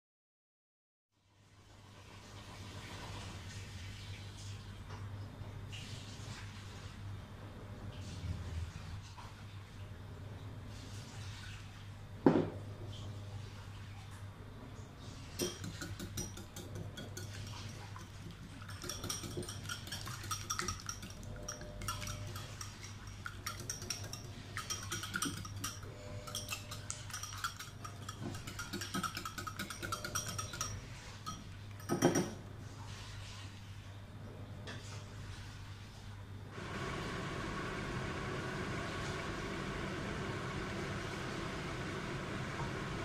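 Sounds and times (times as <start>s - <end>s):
whisk clicking against bowl: 15.4s - 32.4s.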